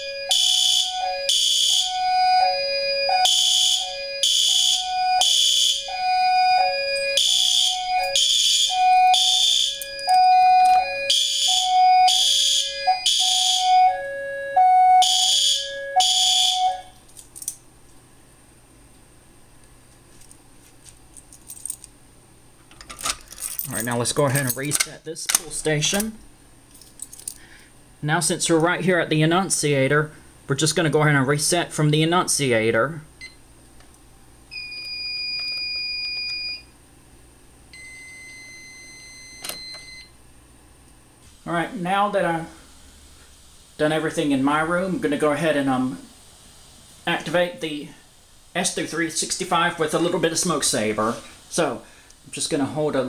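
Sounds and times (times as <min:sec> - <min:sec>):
fire alarm horn blasts: 0:00.0 - 0:17.0
two-tone alarm signal: 0:00.0 - 0:17.0, 0:34.5 - 0:36.7, 0:37.8 - 0:40.1.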